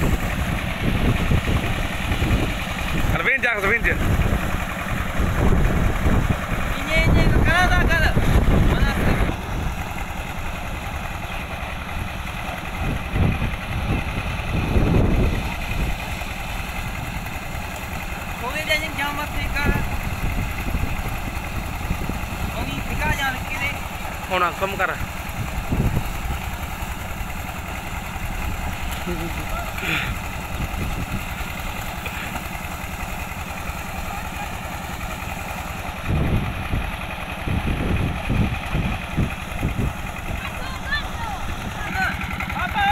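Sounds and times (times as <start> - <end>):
diesel engine running: 0.0 - 42.9.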